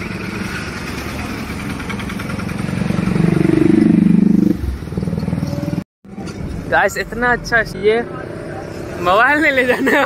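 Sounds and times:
vehicle engine passing close: 0.0s - 5.8s
road traffic: 0.0s - 10.0s.

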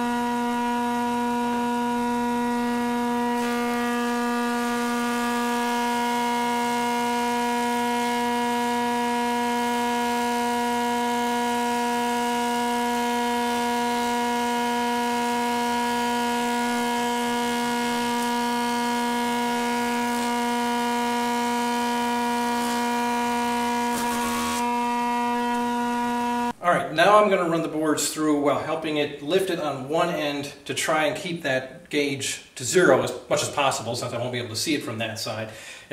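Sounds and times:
thickness planer whining: 0.0s - 26.6s.

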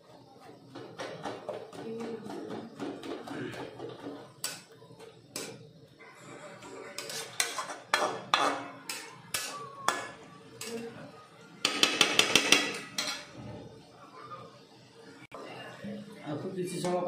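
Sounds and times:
metal spatula scraping a pan: 5.4s - 11.0s, 11.6s - 13.4s.

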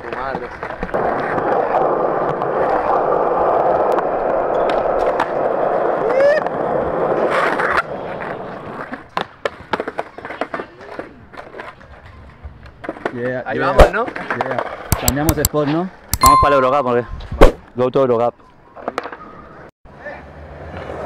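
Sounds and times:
skateboard wheels rolling on concrete: 0.0s - 16.1s, 18.4s - 21.0s
skateboard clacking on ground: 0.0s - 16.8s.

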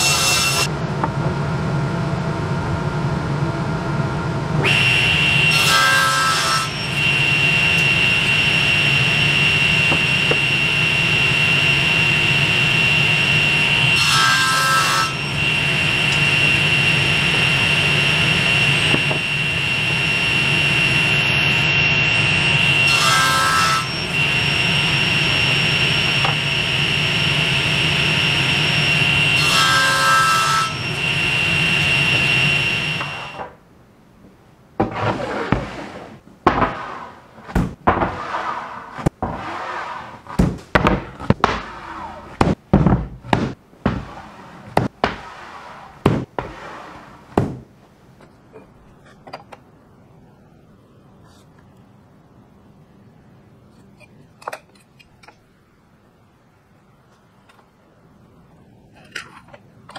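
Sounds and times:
table saw cutting wood: 0.0s - 0.7s, 4.6s - 33.5s.

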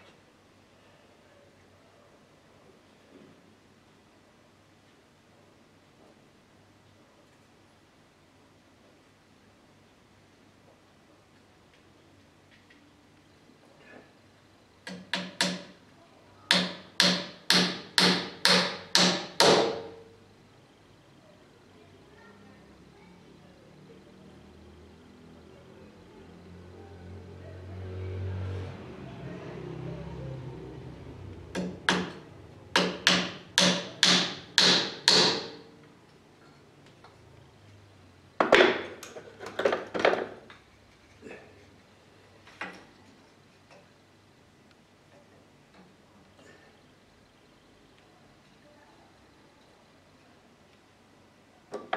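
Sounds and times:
hammer striking wood: 14.9s - 15.8s, 16.5s - 20.0s, 31.6s - 35.6s.

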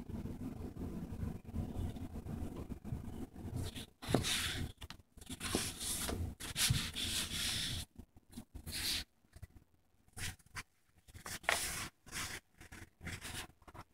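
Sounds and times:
paper rustling: 10.1s - 13.9s.

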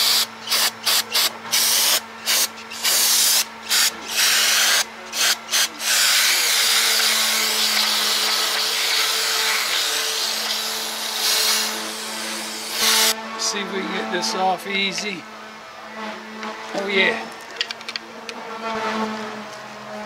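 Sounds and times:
aerosol can spraying: 0.0s - 13.2s.

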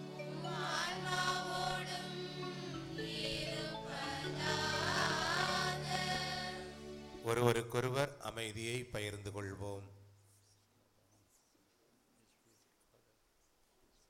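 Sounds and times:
held instrumental chords: 0.0s - 7.4s
choir and congregation singing: 0.0s - 7.5s.

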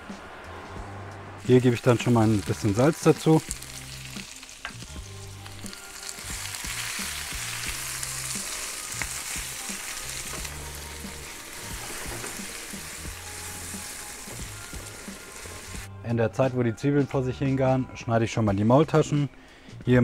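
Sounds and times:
onions sizzling in butter: 1.4s - 15.9s.

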